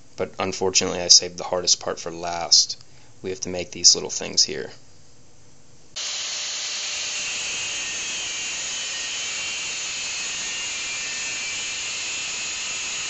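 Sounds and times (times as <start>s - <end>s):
angle grinder cutting steel: 6.0s - 13.0s.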